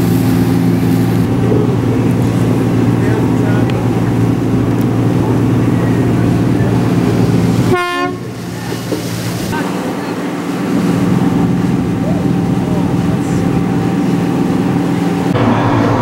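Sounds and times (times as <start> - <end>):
boat engine running: 0.0 - 16.0
short horn blast: 7.7 - 8.3.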